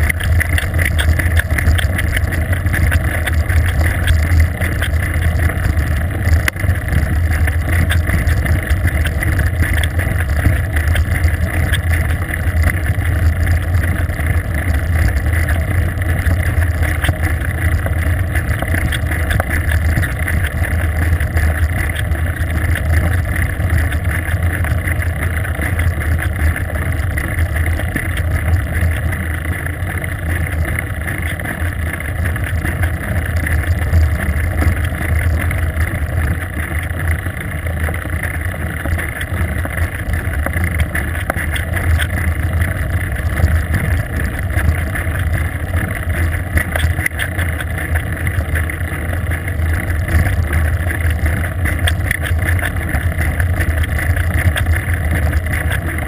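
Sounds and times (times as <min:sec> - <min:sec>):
bicycle road noise: 0:00.0 - 0:56.0.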